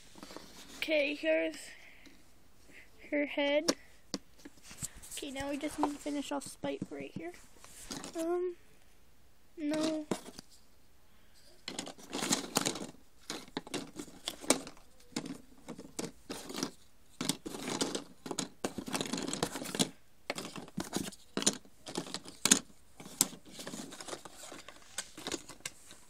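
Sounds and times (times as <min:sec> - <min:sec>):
puzzle pieces sliding and tapping: 0:03.6 - 0:08.3, 0:11.4 - 0:26.0.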